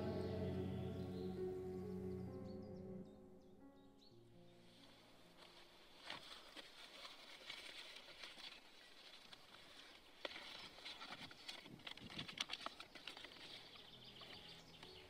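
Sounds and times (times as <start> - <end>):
paper rustling and crackling: 5.4 - 15.0.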